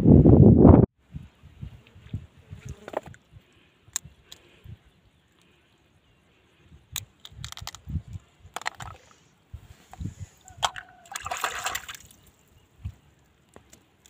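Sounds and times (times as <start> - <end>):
crab shell crackling: 7.0 - 9.1.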